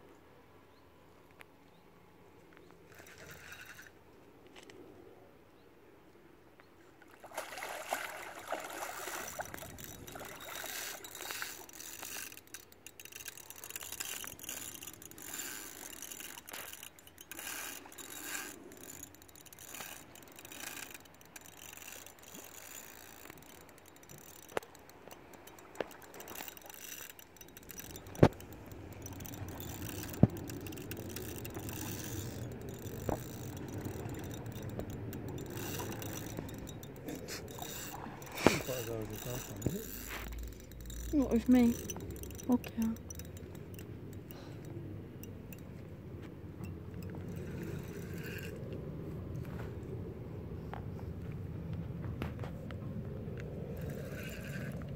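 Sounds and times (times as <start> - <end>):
fishing reel rustling: 2.9 - 4.0, 7.8 - 50.0, 53.6 - 54.9
small reel clicks: 2.9 - 4.0, 9.1 - 45.8, 46.6 - 49.5, 53.4 - 54.9.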